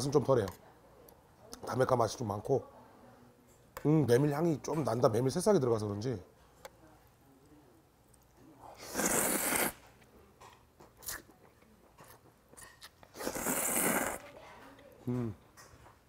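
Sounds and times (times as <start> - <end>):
person slurping noodles: 8.8 - 9.8, 13.1 - 14.2.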